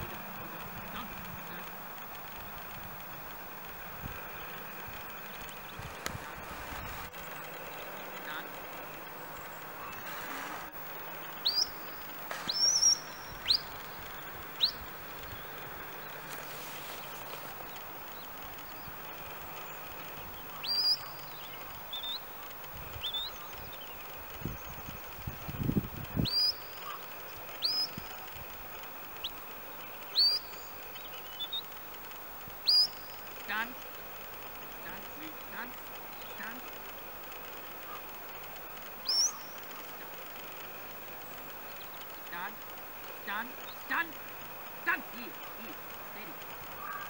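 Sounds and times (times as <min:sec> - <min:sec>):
high upward-sweeping whistles: 0:11.3 - 0:15.5.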